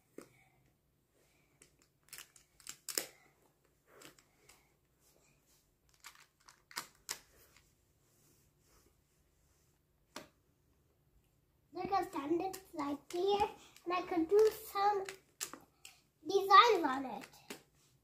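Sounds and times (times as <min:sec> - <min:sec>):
plastic tiles clicking together: 0:01.6 - 0:03.2, 0:05.9 - 0:07.2, 0:12.5 - 0:16.0.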